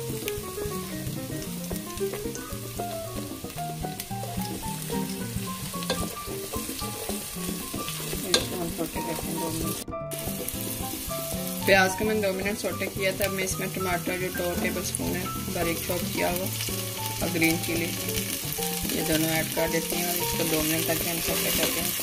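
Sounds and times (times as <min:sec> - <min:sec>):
onion sizzling in oil: 0:00.0 - 0:22.0
soft background music: 0:00.0 - 0:22.0.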